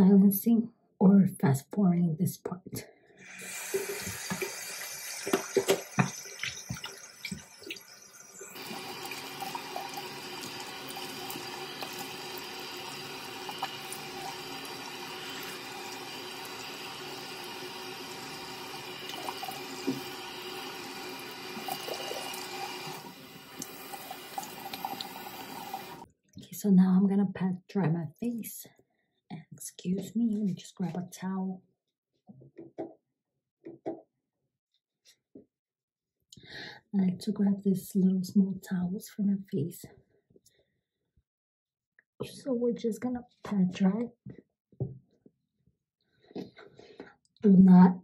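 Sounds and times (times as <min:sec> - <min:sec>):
tap running into sink: 0:03.5 - 0:07.8, 0:19.0 - 0:23.0.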